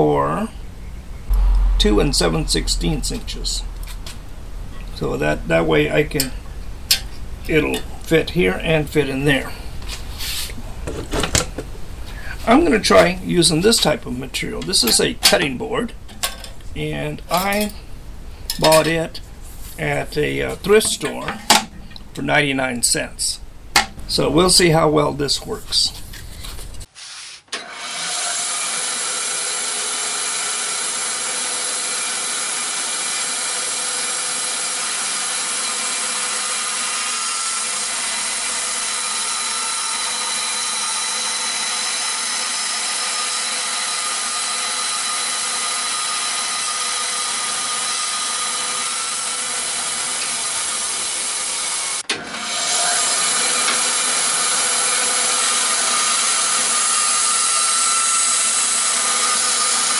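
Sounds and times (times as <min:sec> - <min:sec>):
band saw cutting plastic: 0:27.0 - 0:59.9.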